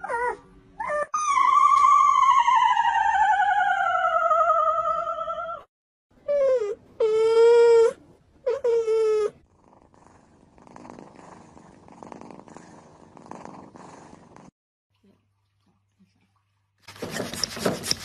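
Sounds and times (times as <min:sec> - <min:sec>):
cat purring: 0:09.5 - 0:14.5.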